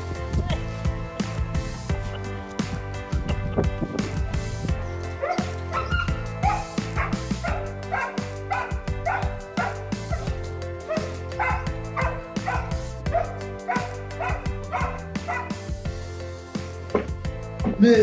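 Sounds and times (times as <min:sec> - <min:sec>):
background music: 0:00.0 - 0:18.0
dog barking excited yips: 0:05.2 - 0:10.3, 0:10.9 - 0:15.5.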